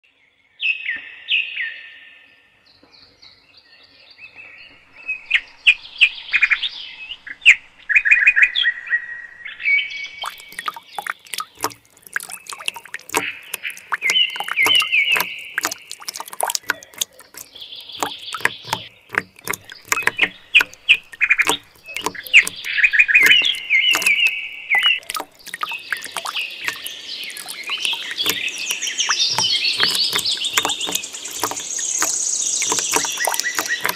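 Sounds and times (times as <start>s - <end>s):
small birds chirping: 9.7s - 33.9s
sharp clicks: 10.2s - 33.9s.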